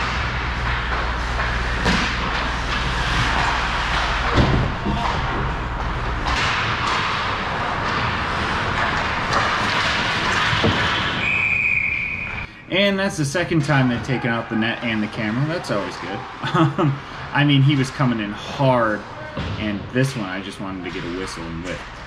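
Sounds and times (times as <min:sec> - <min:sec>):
hockey sticks clattering: 0:00.0 - 0:11.4.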